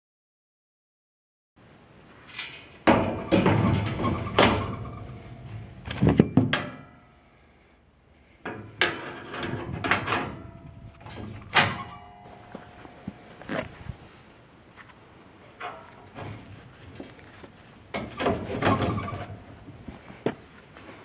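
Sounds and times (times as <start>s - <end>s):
metal rod clunking and scraping: 2.3s - 7.4s, 8.4s - 13.8s, 15.5s - 20.5s.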